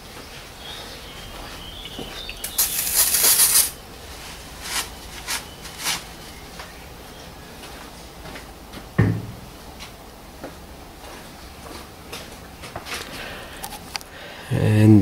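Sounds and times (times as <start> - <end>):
paper towel rustling: 2.5 - 6.6.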